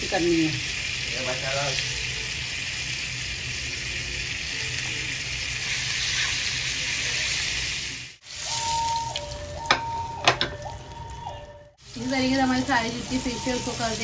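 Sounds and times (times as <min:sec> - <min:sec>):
fish sizzling in oil: 0:00.0 - 0:10.0, 0:10.6 - 0:14.0
two-note electronic tone: 0:08.4 - 0:14.0.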